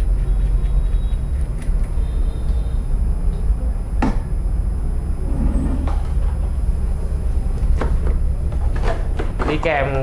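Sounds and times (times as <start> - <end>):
steady low rumble: 1.8 - 8.7.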